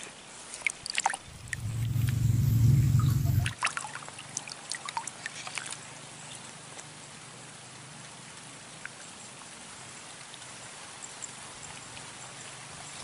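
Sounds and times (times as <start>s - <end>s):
loud low rumble: 1.2s - 3.6s.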